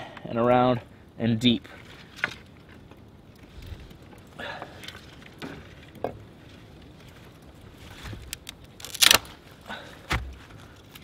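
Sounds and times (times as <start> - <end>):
sapling cracking and snapping: 6.8 - 11.0.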